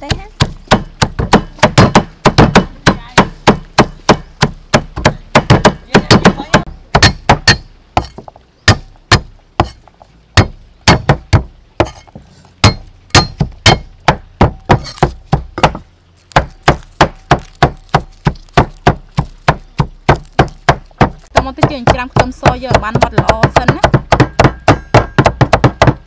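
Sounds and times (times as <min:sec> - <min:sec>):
cleaver knocking on chopping block: 0:16.4 - 0:26.0.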